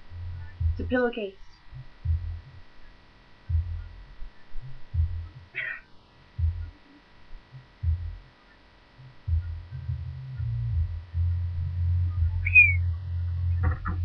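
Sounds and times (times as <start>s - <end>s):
muffled thumps: 1.9s - 2.4s, 3.5s - 4.3s, 4.9s - 5.4s, 6.4s - 6.7s, 12.2s - 14.0s.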